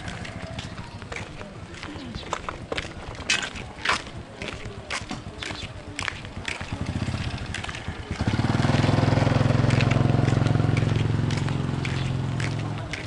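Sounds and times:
motorcycle engine running: 0:04.0 - 0:13.0.

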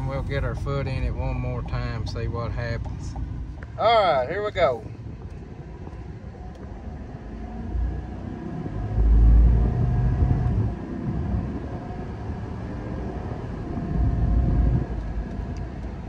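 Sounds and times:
deep engine rumble accelerating: 0:00.0 - 0:16.0
road noise: 0:00.0 - 0:16.0.

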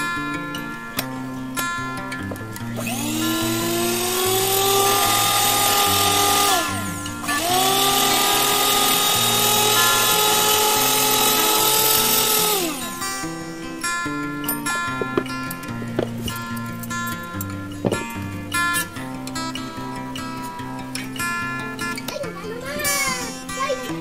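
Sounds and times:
acoustic guitar music: 0:00.0 - 0:24.0
hand mixer motor whining: 0:02.6 - 0:13.6.

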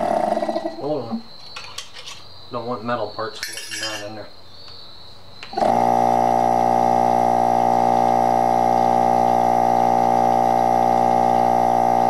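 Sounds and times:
compressor humming with high tone: 0:03.4 - 0:12.0.

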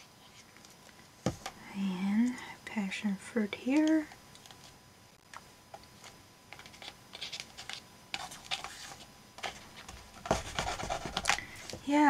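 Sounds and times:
paper rustling and rubbing: 0:06.0 - 0:11.9.

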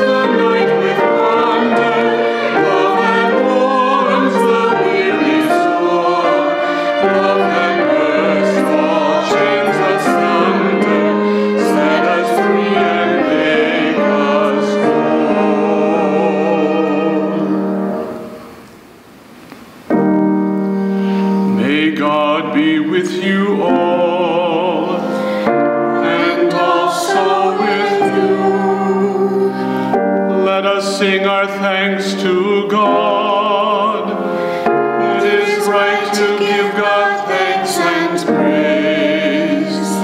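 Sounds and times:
liturgy singing: 0:00.0 - 0:18.7, 0:21.4 - 0:40.0
piano accompaniment: 0:00.0 - 0:18.8, 0:19.7 - 0:40.0
man singing: 0:21.6 - 0:25.2, 0:30.3 - 0:34.2.

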